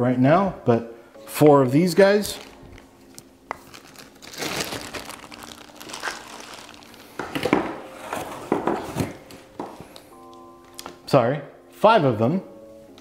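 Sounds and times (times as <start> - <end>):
plastic packaging and cardboard rustling: 2.0 - 10.1.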